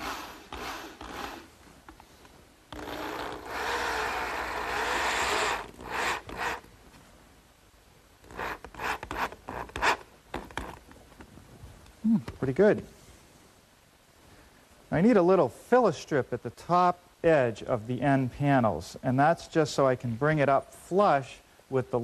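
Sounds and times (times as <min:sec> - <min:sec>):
power drill driving screws into wood: 0:00.0 - 0:01.5, 0:02.7 - 0:06.7, 0:08.2 - 0:10.8.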